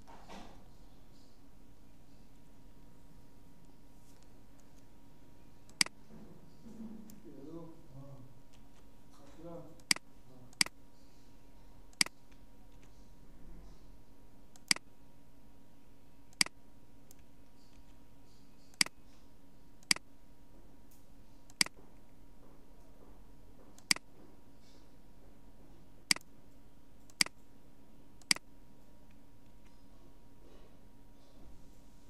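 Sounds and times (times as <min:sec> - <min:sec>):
faint steady hum: 0:00.0 - 0:32.0
computer mouse clicking: 0:05.6 - 0:06.0, 0:11.9 - 0:13.0, 0:14.5 - 0:14.8, 0:16.3 - 0:19.0, 0:19.8 - 0:20.0, 0:21.5 - 0:21.8, 0:23.8 - 0:24.1, 0:26.1 - 0:26.3, 0:27.0 - 0:27.5, 0:28.2 - 0:28.4.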